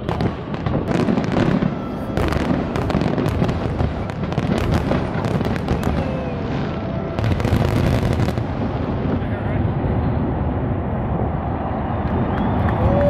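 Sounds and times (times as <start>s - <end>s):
fireworks bursting: 0.0s - 10.2s
low rumble: 0.0s - 13.0s.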